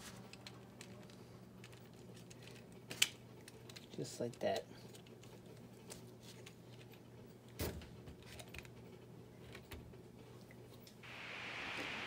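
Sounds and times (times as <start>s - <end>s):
plastic toy being handled: 0.0s - 7.0s.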